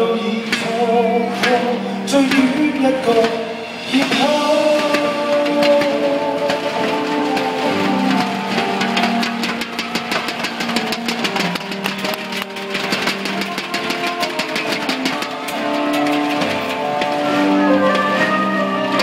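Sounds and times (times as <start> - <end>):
live pop band playing: 0.0 - 19.0
fast sharp ticks: 3.9 - 18.2.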